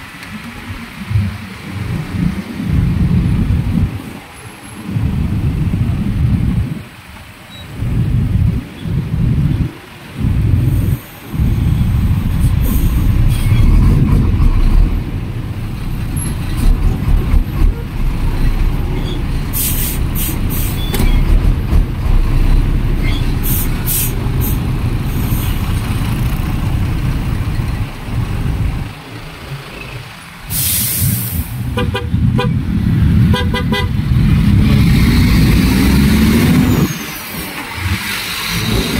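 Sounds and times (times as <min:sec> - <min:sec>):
low rumble of engines: 0:00.0 - 0:38.9
short hissing bursts: 0:19.5 - 0:20.8, 0:23.4 - 0:25.7, 0:30.4 - 0:31.7.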